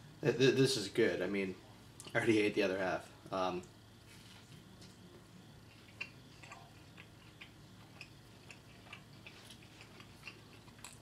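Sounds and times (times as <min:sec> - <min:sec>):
person chewing toasted sandwich: 0:04.1 - 0:11.0.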